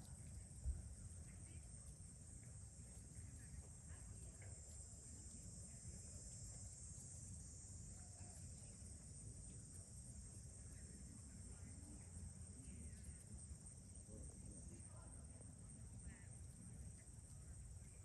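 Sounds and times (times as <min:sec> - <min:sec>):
high-pitched insect chorus: 0:00.0 - 0:18.0.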